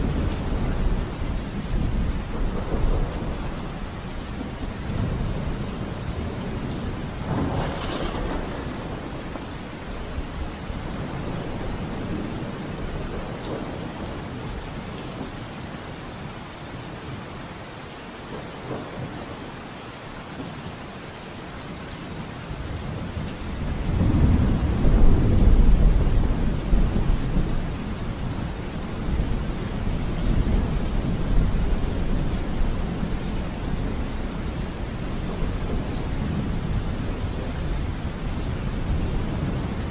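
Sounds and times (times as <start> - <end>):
rolling thunder: 0.0 - 14.6, 22.8 - 39.9
steady rain: 0.0 - 39.9.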